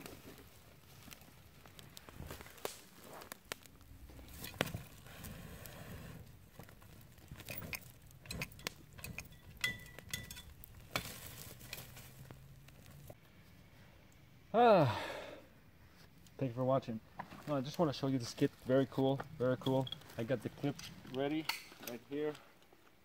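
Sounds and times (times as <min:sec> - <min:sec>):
shovel scraping embers: 0:00.0 - 0:13.2, 0:18.2 - 0:21.9
campfire crackling and hissing: 0:00.0 - 0:23.0
sharp pops and clicks: 0:01.0 - 0:05.1, 0:06.2 - 0:13.2.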